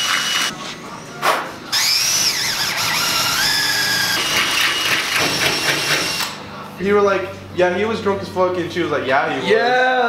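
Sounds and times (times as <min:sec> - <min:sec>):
cordless drill boring into metal: 0:00.0 - 0:00.5, 0:01.8 - 0:06.3.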